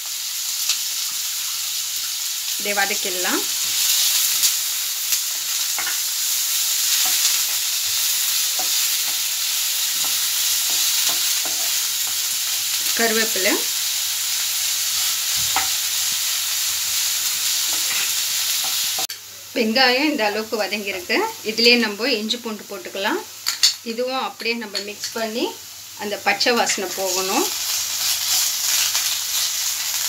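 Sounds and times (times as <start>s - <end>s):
onions sizzling in oil: 0.0s - 30.0s.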